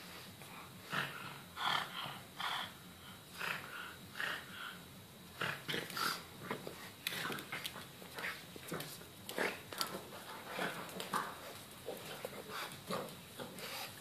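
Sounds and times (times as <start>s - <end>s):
dog snorting and grunting: 5.4s - 7.6s.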